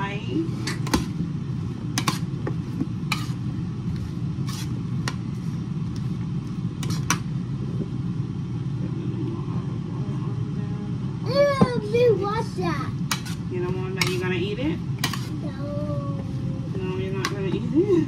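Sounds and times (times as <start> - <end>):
air fryer humming: 0.0 - 18.0.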